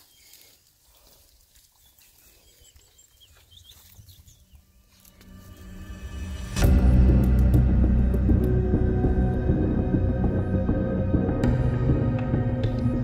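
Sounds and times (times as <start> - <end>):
faint high bird chirps: 1.7 - 5.2
low ominous music drone: 4.7 - 13.0.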